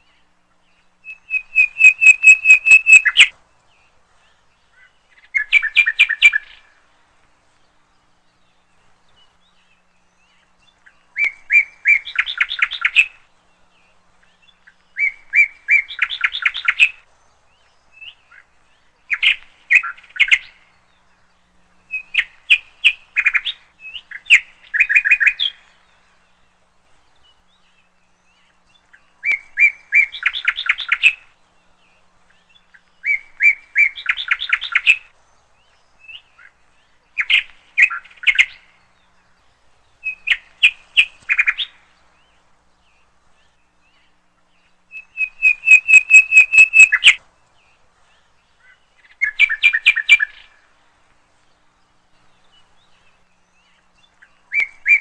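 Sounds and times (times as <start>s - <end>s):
small bird chirping: 0.0s - 6.8s, 7.6s - 50.6s.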